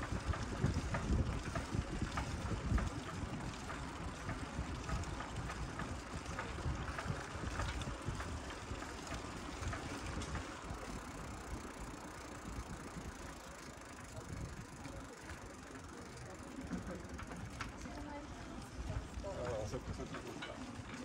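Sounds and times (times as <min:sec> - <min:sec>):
wind rumbling on microphone: 0:00.0 - 0:13.4
bicycle clicking and rattling: 0:00.0 - 0:21.0.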